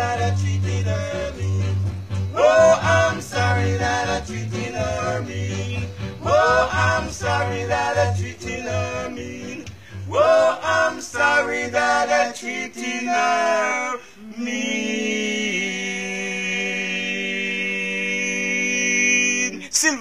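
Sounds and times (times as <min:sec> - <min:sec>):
guitar: 0:00.0 - 0:10.2
pulsing bass line: 0:00.0 - 0:10.7
men singing together: 0:00.0 - 0:19.6.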